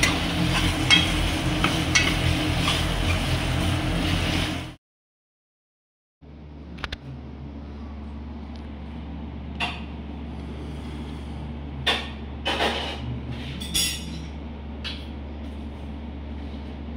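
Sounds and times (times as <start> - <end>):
low machine hum: 0.0 - 4.8, 6.2 - 16.9.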